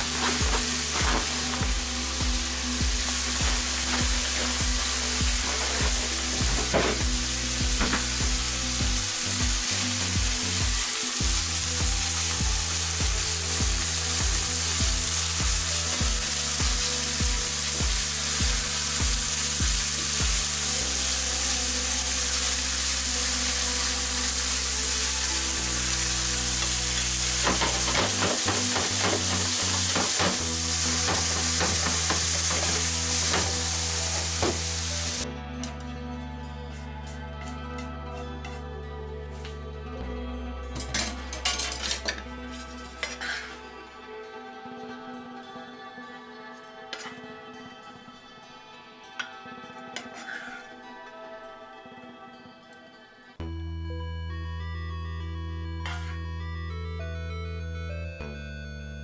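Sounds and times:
meat sizzling in a frying pan: 0.0 - 35.2.

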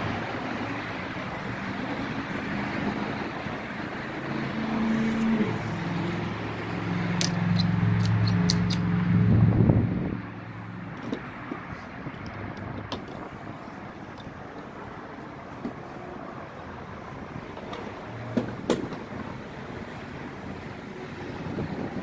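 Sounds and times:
road traffic: 0.0 - 22.0
vehicle engine hum: 0.0 - 22.0
sharp clicks: 7.2 - 8.9.

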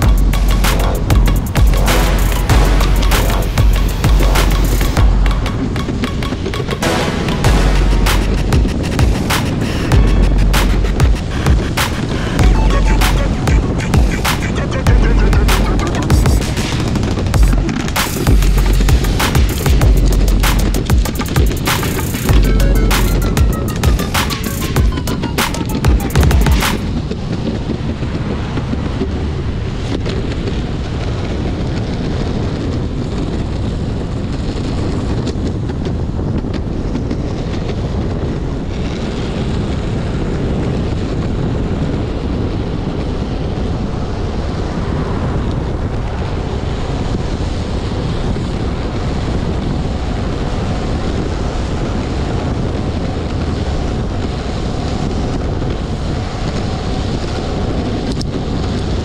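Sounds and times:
wind buffeting microphone: 0.0 - 59.0
skateboard wheels rolling on pavement: 26.7 - 59.0.

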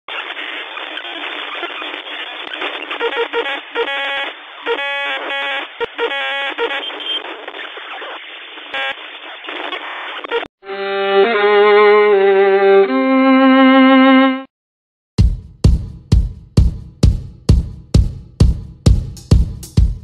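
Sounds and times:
radio static hiss: 0.1 - 10.5
short beeping tones: 6.6 - 7.2.

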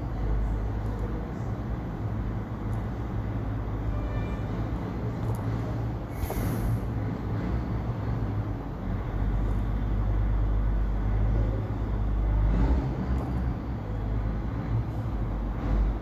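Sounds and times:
noisy hiss: 6.0 - 7.0.

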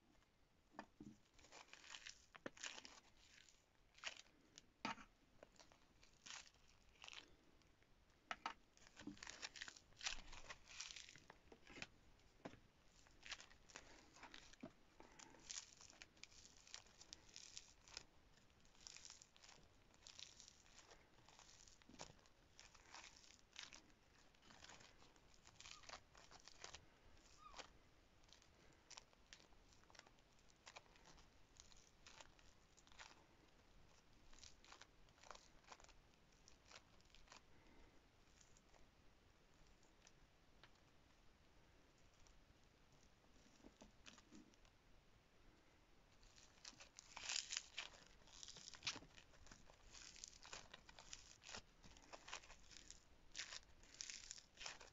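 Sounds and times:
foam beads crackling: 1.3 - 4.6, 8.8 - 11.9, 12.9 - 38.7, 46.2 - 54.9.

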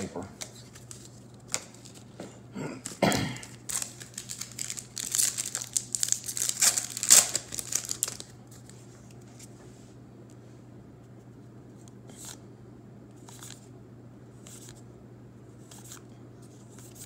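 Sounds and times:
foil wrapper crinkling: 2.8 - 8.7.

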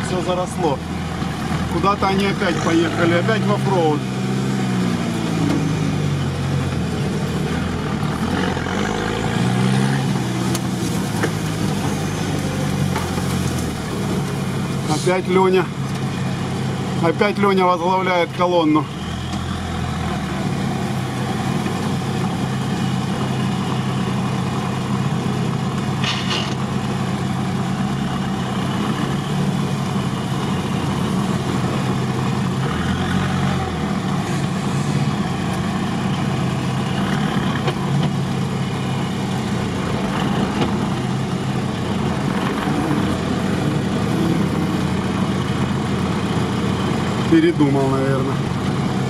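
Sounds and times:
vehicle engine running at low revs: 0.0 - 49.0.

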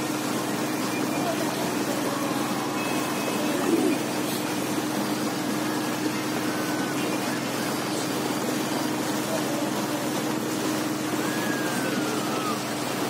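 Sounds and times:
motorboat engine drone: 0.0 - 13.0
rushing water and air: 0.0 - 13.0.

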